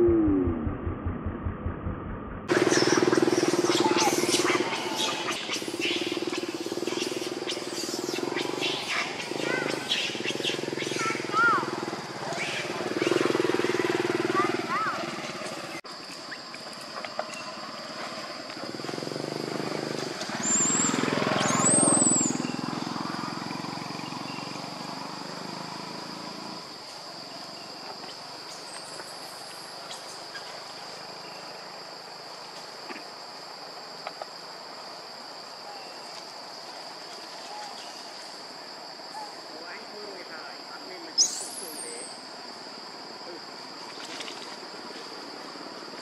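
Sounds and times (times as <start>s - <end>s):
low rumble: 0.0s - 2.5s
insects droning: 2.5s - 46.0s.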